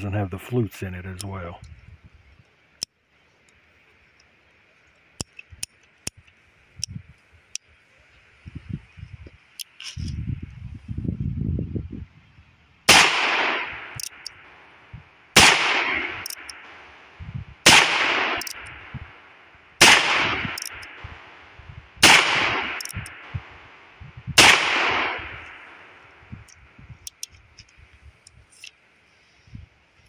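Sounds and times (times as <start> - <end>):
revolver shots with echo: 15.4 - 16.2, 17.7 - 18.7, 22.0 - 23.2, 24.4 - 25.7.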